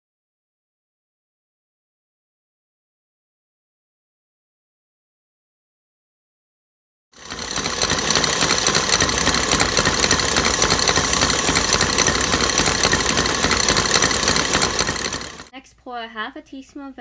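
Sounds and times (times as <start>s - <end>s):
stand mixer whisking: 7.2s - 15.5s.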